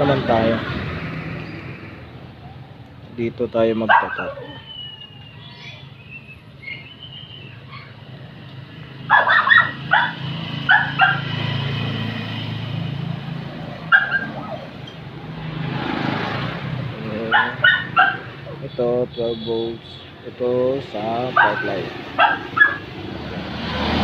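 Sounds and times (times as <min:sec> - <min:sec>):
dog barking: 0:03.9 - 0:04.7, 0:09.1 - 0:11.4, 0:13.9 - 0:14.7, 0:17.2 - 0:18.5, 0:21.3 - 0:22.9.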